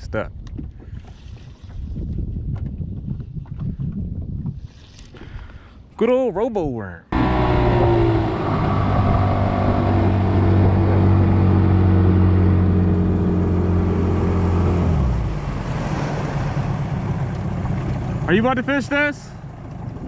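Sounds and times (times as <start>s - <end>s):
outboard motor running: 7.2s - 20.0s.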